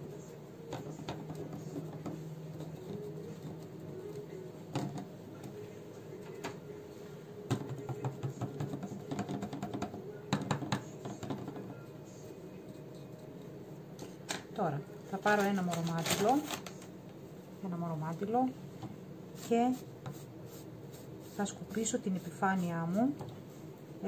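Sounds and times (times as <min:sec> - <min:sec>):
soft background music: 0:00.0 - 0:24.0
paintbrush tapping: 0:07.5 - 0:11.8, 0:19.4 - 0:21.9.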